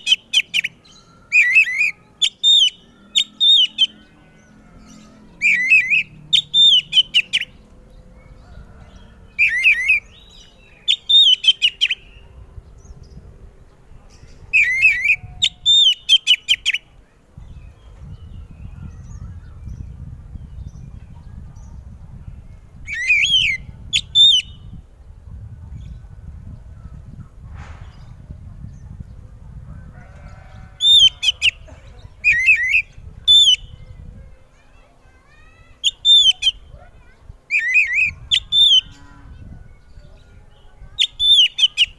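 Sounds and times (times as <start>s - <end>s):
bird singing whistled phrases: 0.0s - 4.1s, 5.4s - 7.6s, 9.4s - 12.2s, 14.6s - 16.8s, 22.9s - 24.8s, 35.7s - 36.8s, 37.5s - 39.0s, 39.7s - 41.9s.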